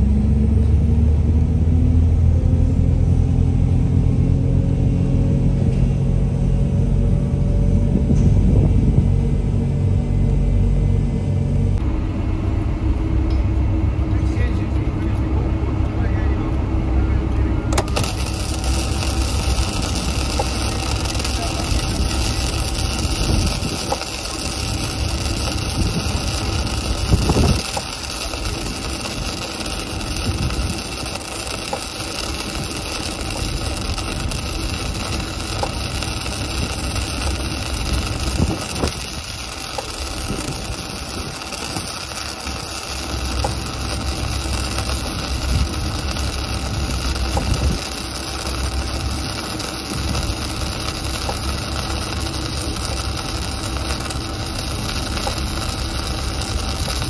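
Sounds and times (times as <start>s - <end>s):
low hum: 0.0s - 57.0s
welding arc crackling: 17.2s - 57.0s.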